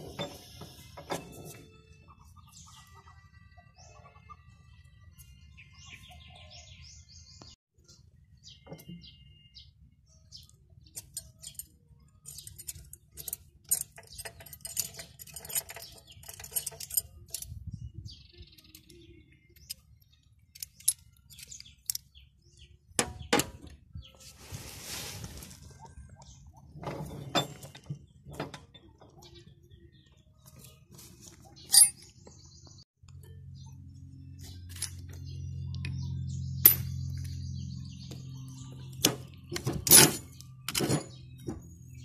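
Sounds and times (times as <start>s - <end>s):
birds chirping: 0.0s - 42.0s
metallic tool clicks and clinks: 11.0s - 17.6s, 31.7s - 32.0s.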